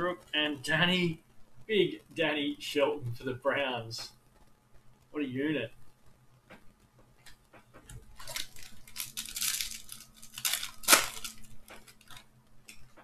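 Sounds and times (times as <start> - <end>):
plastic wrapper crinkling and tearing: 7.2 - 13.0.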